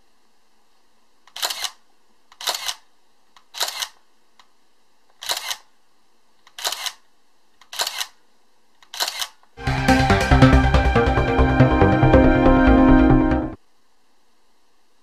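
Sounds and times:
camera shutter clacking: 1.3 - 1.8, 5.2 - 5.6, 6.5 - 7.0, 7.7 - 8.2, 8.9 - 9.4.

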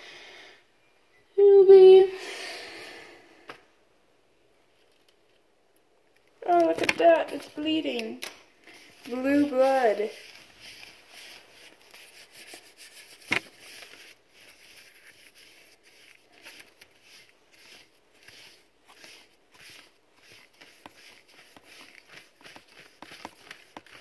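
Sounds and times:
paintbrush swishing on paper: 8.7 - 24.0.

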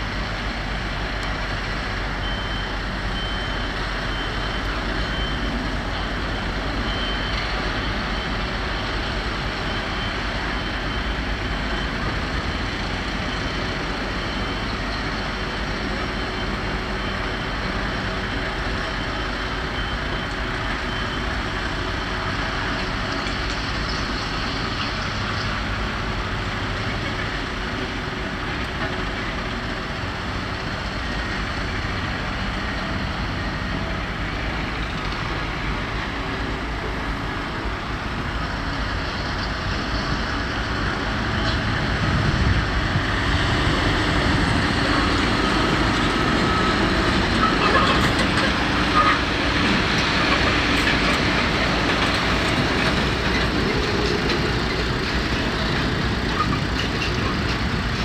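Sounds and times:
heavy diesel machinery running: 0.0 - 58.0
reversing alarm beeping: 1.9 - 25.2, 43.3 - 50.8.

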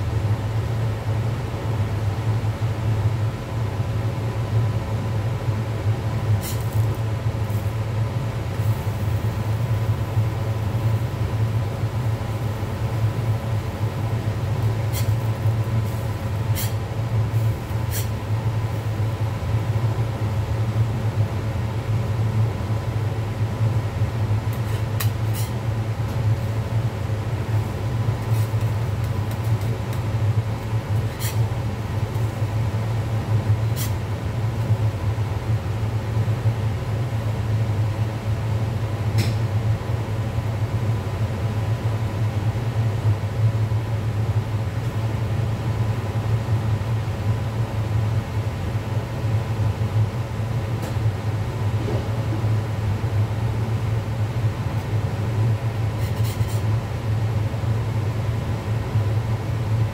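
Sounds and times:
kitchen machinery hum: 0.0 - 59.9.

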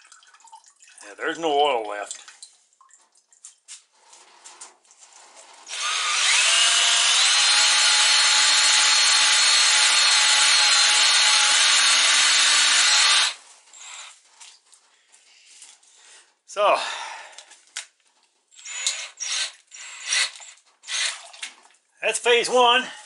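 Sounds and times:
power drill motor whining: 5.7 - 14.1, 18.6 - 21.1.

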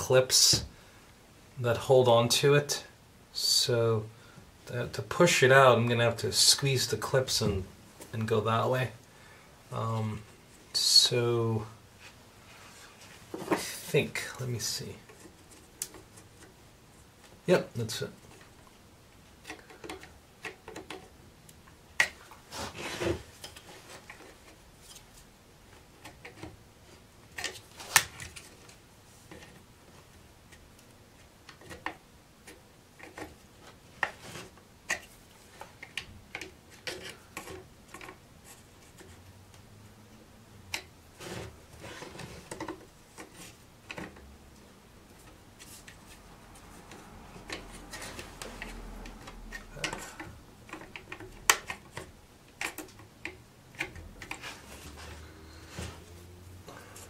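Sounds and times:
light scraping and rubbing: 22.5 - 25.3, 41.2 - 43.6, 54.2 - 57.0.

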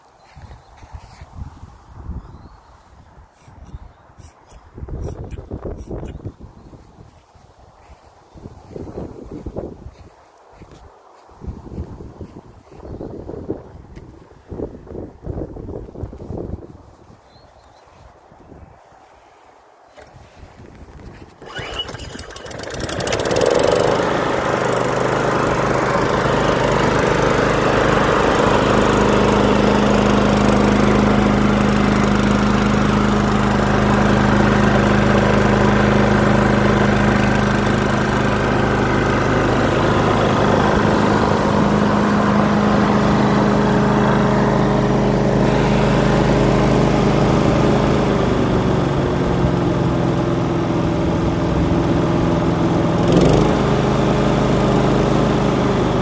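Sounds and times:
lawn mower engine running: 20.0 - 56.0.

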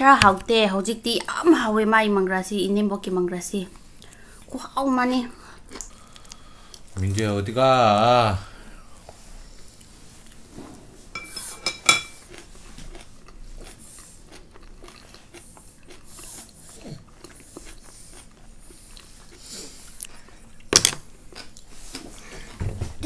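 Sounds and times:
utensil clinking on dish: 11.2 - 12.2
chewing and biting: 12.1 - 22.0.

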